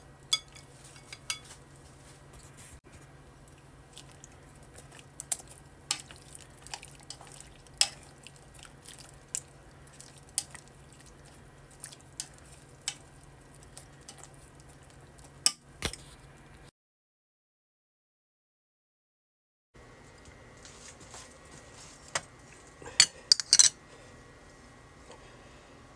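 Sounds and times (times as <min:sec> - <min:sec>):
chopsticks knocking metal pot: 0:00.3 - 0:01.4.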